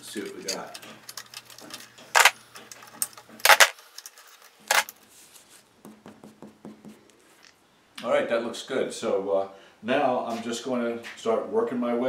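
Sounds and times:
metal clamps clanking: 0.0s - 4.9s
light handling sounds: 0.0s - 5.7s.

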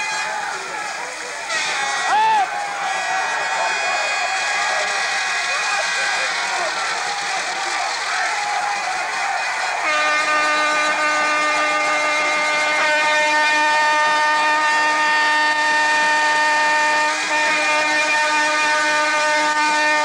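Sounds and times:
steady horn-like tone: 9.7s - 20.0s.

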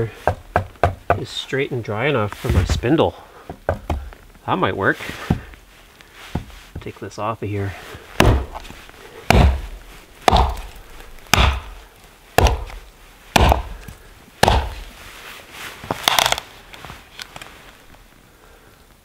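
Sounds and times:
hatchet chopping dry wood: 0.0s - 1.2s, 8.2s - 8.7s, 9.3s - 11.8s, 12.4s - 14.9s, 16.0s - 16.4s.

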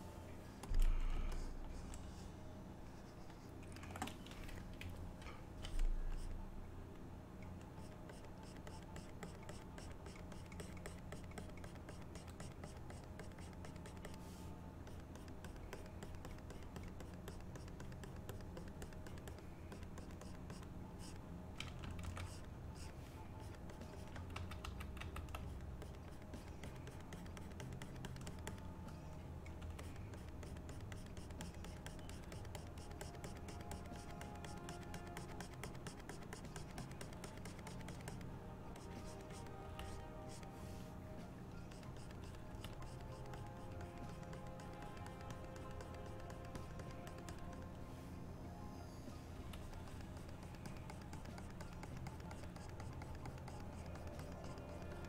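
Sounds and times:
keyboard clicking: 7.4s - 14.2s, 14.9s - 40.4s, 41.6s - 47.6s, 49.5s - 55.0s
pen scratching: 7.6s - 21.2s, 22.1s - 28.8s, 29.5s - 40.5s, 41.6s - 47.7s, 49.6s - 55.0s.

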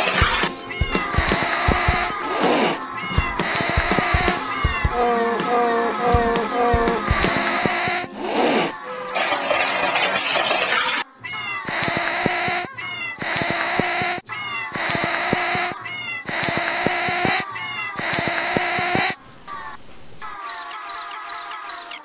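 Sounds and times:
cat meowing: 0.1s - 7.2s, 11.2s - 18.9s.

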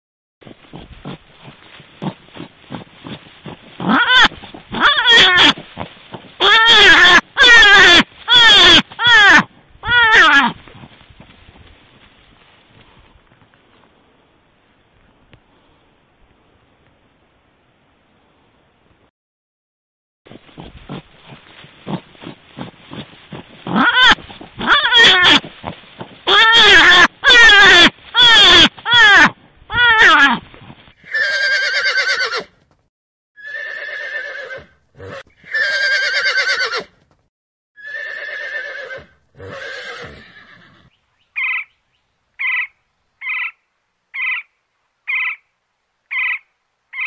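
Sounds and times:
drawn-out animal calls: 3.8s - 5.6s, 6.4s - 10.5s
drawn-out animal cries: 3.8s - 5.6s, 6.4s - 10.6s, 23.7s - 25.5s, 26.3s - 30.4s, 31.0s - 32.6s, 33.4s - 37.0s, 37.8s - 41.6s.

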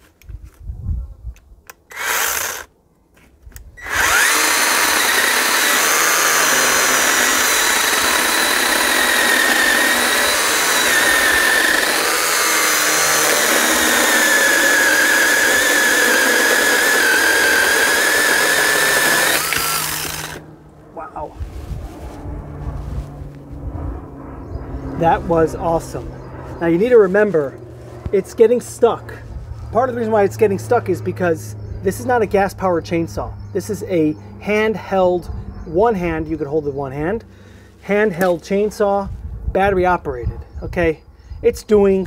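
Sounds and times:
chainsaw cutting log: 1.8s - 2.7s, 3.8s - 20.4s.

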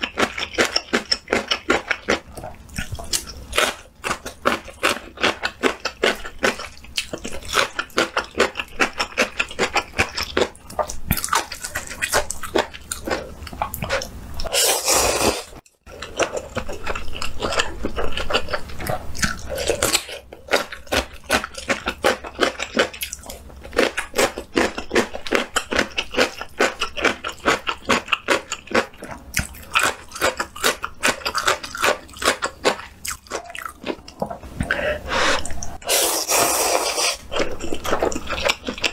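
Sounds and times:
wet chewing and smacking: 0.0s - 14.5s, 15.6s - 34.8s, 37.0s - 38.9s
slurping noodles: 14.4s - 15.6s, 34.6s - 38.2s.

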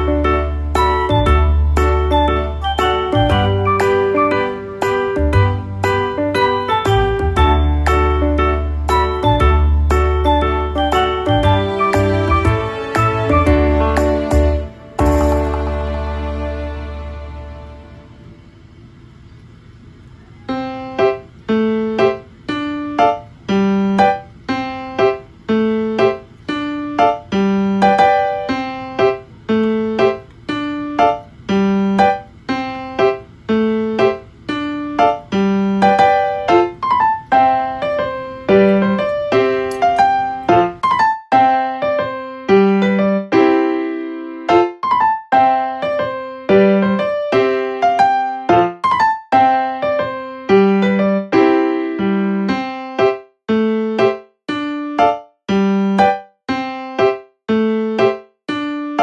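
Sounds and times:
piano playing quick melody: 0.0s - 18.5s, 20.2s - 59.0s.

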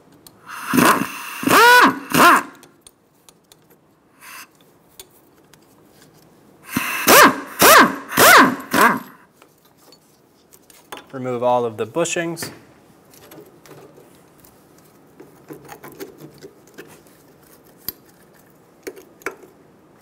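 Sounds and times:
power tool whirring: 0.5s - 2.6s, 6.7s - 9.2s.

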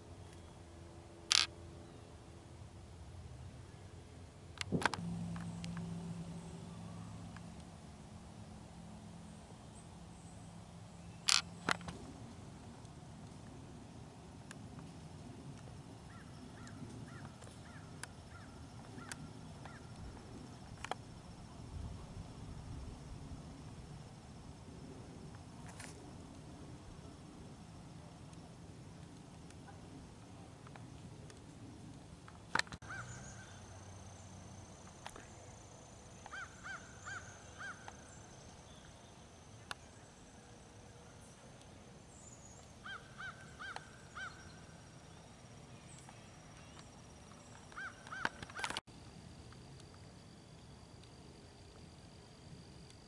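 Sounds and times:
low wind rumble: 0.0s - 34.6s
sharp clicks: 1.3s - 1.5s
sharp click: 4.6s - 5.9s
distant bird calling: 16.0s - 20.6s, 32.5s - 41.2s, 42.1s - 48.8s.

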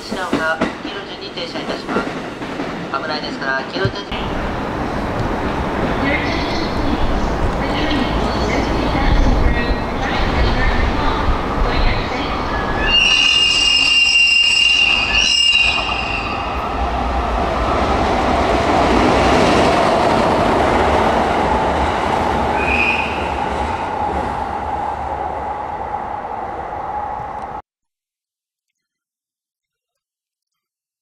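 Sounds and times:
train wheel and rail rumble: 0.0s - 27.6s
high squeal: 12.5s - 16.8s.

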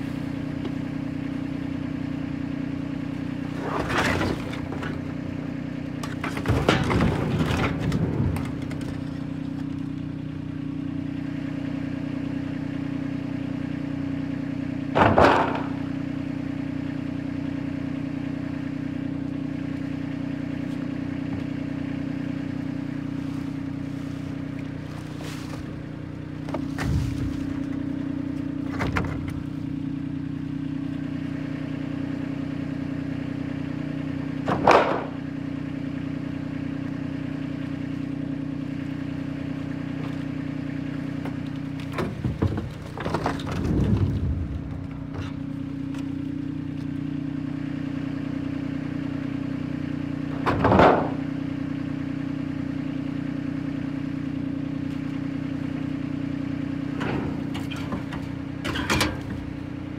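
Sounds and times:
engine idling: 0.0s - 59.9s.

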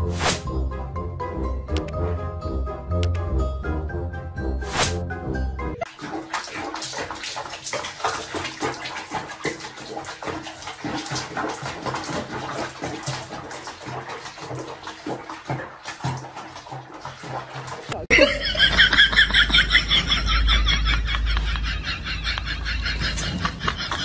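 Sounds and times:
bathwater sloshing and splashing: 5.8s - 20.2s.

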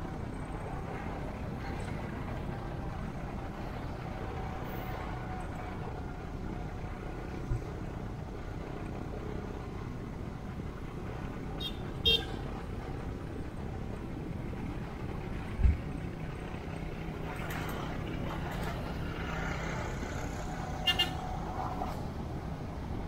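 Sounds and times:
vehicle engine and road rumble: 0.0s - 23.0s.

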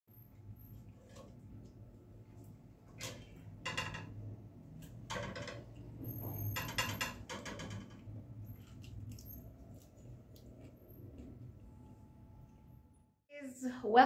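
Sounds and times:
low steady hum: 7.9s - 14.0s.

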